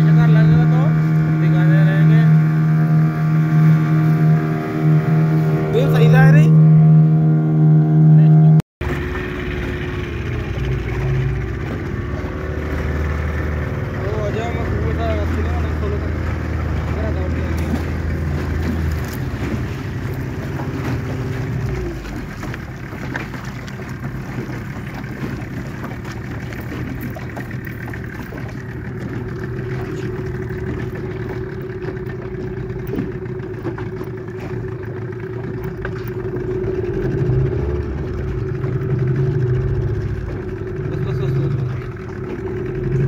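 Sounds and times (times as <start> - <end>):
boat engine running: 0.0 - 43.0
water rushing along hull: 0.0 - 43.0.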